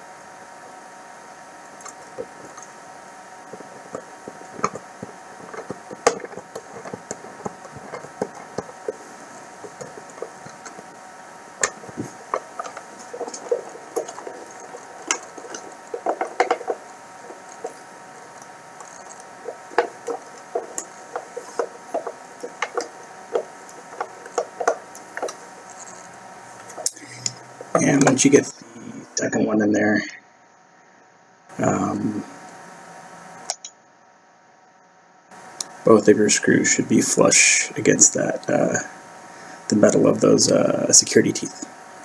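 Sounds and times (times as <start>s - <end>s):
plastic box creaking when handled: 11.6s - 28.3s.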